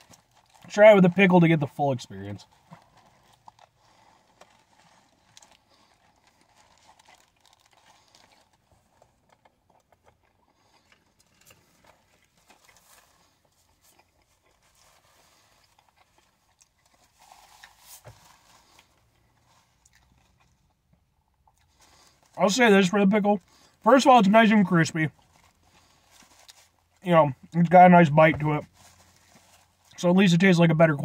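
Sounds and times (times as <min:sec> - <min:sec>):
chewing with crunches: 0:00.0 - 0:01.3, 0:02.3 - 0:22.4, 0:25.1 - 0:27.6.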